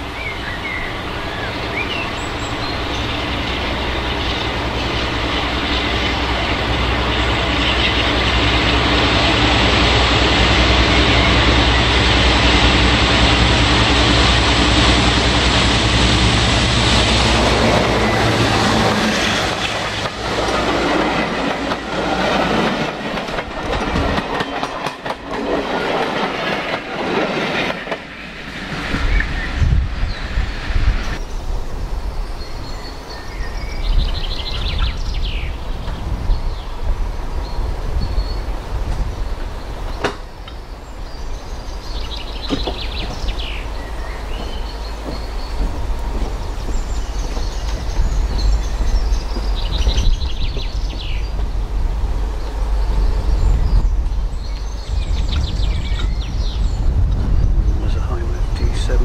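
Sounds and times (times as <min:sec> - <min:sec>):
diesel locomotive rumble: 0:00.0 - 0:32.1, 0:34.5 - 0:59.0
small birds twittering: 0:00.1 - 0:12.6, 0:31.2 - 0:51.6, 0:52.2 - 0:59.0
small birds chirping: 0:37.4 - 0:51.6.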